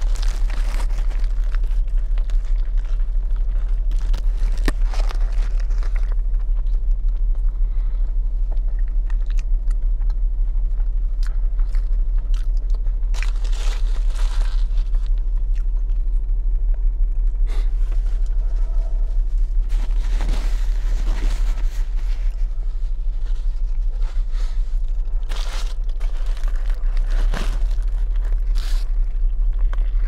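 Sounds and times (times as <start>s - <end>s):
wrapper crinkling: 0.0s - 6.1s, 13.1s - 15.2s, 25.0s - 30.0s
biting and chewing: 0.0s - 7.6s, 8.5s - 30.0s
steady low hum: 0.0s - 30.0s.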